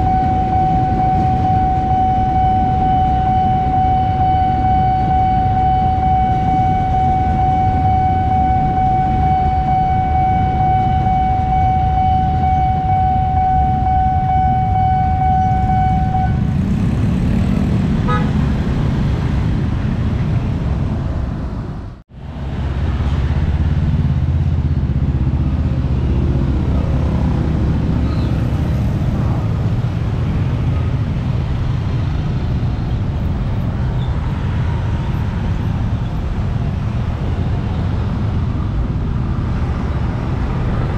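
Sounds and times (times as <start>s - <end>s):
level crossing warning tone: 0.0s - 16.5s
dense traffic noise: 0.0s - 40.9s
motorcycle and car engines: 0.0s - 40.9s.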